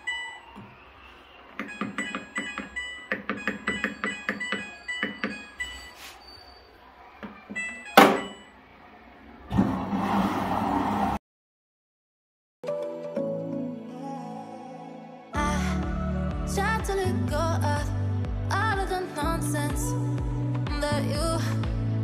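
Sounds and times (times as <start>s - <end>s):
short electronic beeps: 1.6s - 6.8s, 7.6s - 8.6s
loud thunk: 8.0s - 8.4s
washing machine starting: 9.4s - 11.2s.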